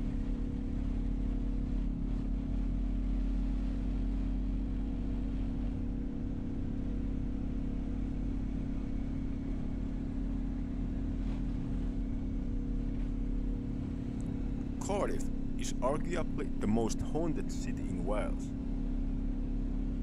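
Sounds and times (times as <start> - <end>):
car cabin engine and road hum: 11.0 - 18.4.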